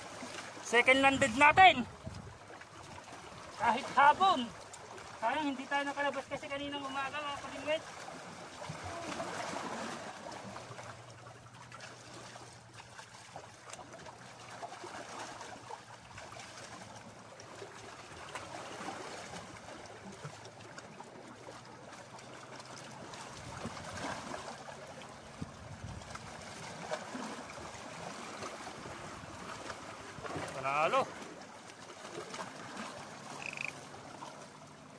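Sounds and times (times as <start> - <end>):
waves lapping on rocks: 0.0 - 34.9.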